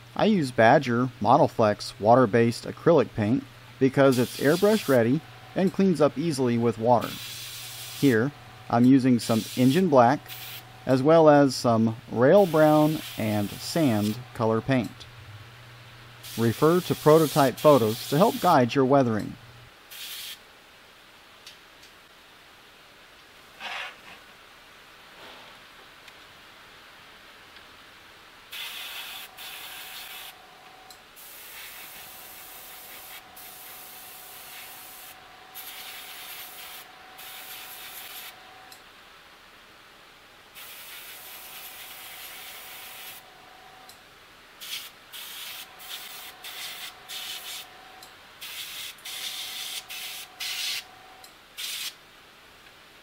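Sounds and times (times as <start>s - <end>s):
airbrush hissing in bursts: 4.0s - 5.2s, 7.0s - 8.3s, 9.1s - 10.7s, 12.3s - 14.2s, 16.2s - 18.6s, 19.9s - 20.4s, 28.5s - 30.4s, 31.2s - 38.4s, 40.6s - 43.3s, 44.6s - 47.7s, 48.4s - 50.9s, 51.6s - 52.0s.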